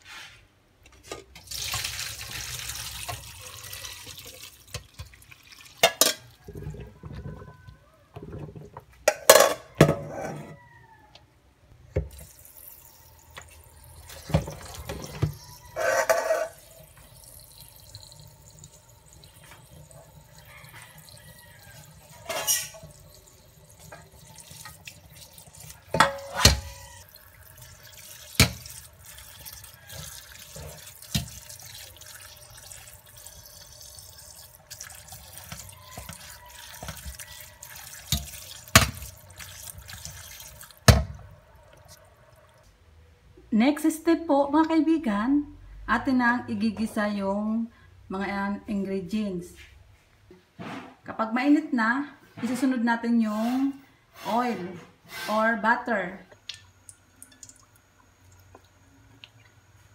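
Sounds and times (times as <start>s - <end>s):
water pouring into colander: 1.4s - 7.6s, 12.1s - 42.6s
tap running: 34.7s - 42.0s.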